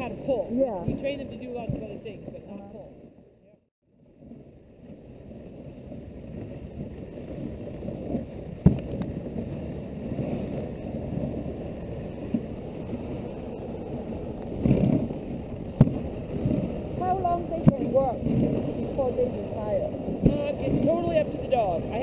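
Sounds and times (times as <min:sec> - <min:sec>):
sled runners rushing over snow: 0:04.3 - 0:22.0.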